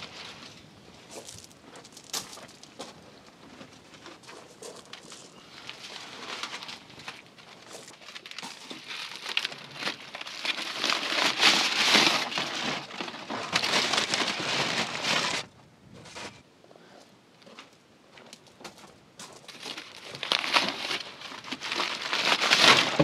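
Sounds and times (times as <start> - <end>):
aluminium foil crinkling: 3.5 - 15.5, 19.4 - 23.0.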